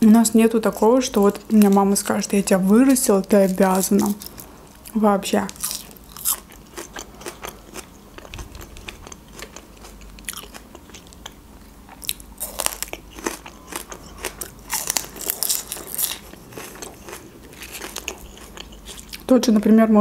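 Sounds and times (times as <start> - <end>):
person chewing: 3.7 - 19.3
crisp crunches of green onion: 12.1 - 19.3.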